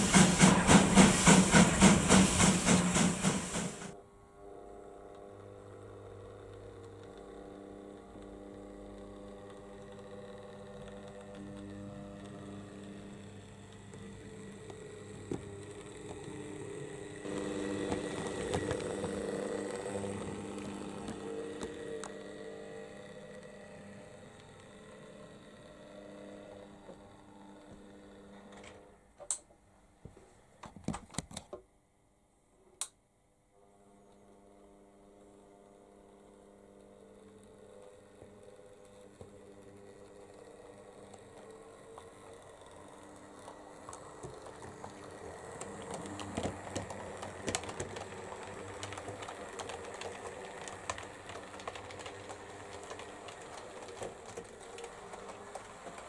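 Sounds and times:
wheels clicking on track: 0.0 - 4.0, 5.7 - 28.8, 37.4 - 56.0
model train motor whirring: 5.2 - 29.0, 35.0 - 56.0.

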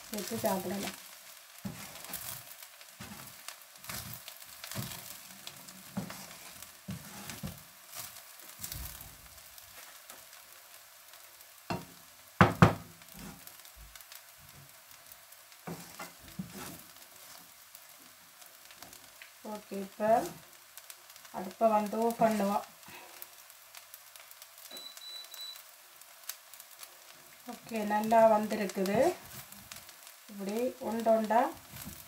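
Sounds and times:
light sizzle: 0.0 - 32.0
spatula scraping frying pan: 0.1 - 8.8, 13.1 - 13.5, 15.6 - 17.6.

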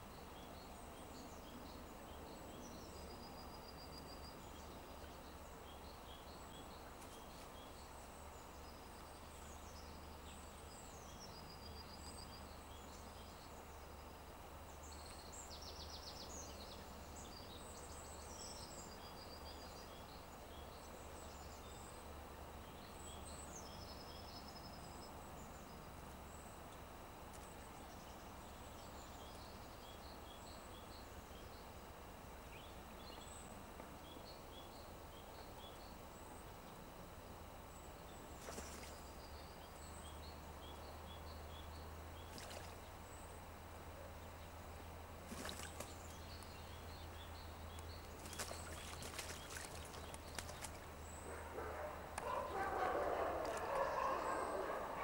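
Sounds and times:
outdoor hiss and low rumble: 0.0 - 55.0
songbirds singing: 0.0 - 55.0.

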